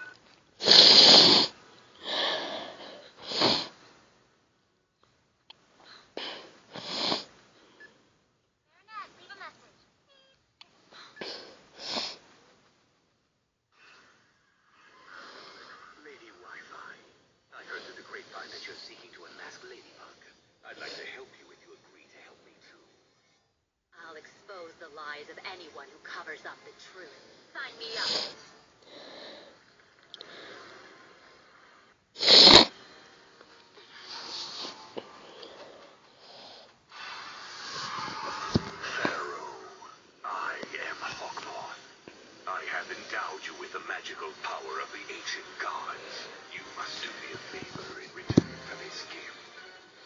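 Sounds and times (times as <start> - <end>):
sneeze-like burst: 0.6 - 1.5, 32.2 - 32.7
soft hissing breath: 0.6 - 4.1, 5.8 - 8.1, 10.8 - 12.4, 13.7 - 23.6, 26.1 - 50.0
soft puffs of breath: 33.8 - 39.1.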